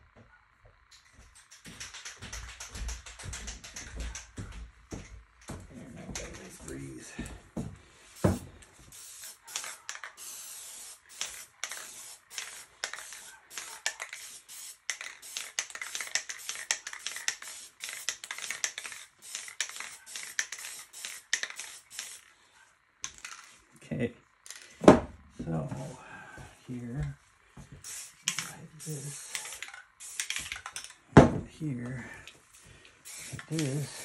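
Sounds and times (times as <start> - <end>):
spray can hissing: 8.0 - 22.3, 27.7 - 31.0, 32.5 - 34.0.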